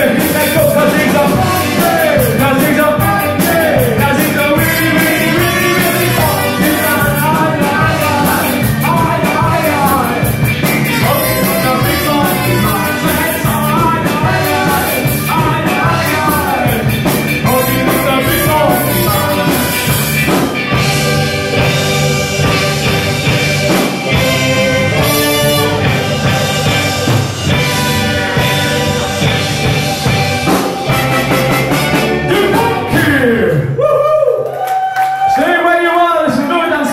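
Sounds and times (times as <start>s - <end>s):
person singing: 0.0s - 21.8s, 29.2s - 34.3s
electric guitar: 0.0s - 35.3s
saxophone: 4.4s - 7.2s, 10.6s - 15.4s, 17.5s - 33.3s
trumpet: 4.5s - 7.1s, 10.8s - 13.9s, 17.5s - 20.2s, 24.2s - 27.0s, 30.8s - 33.1s.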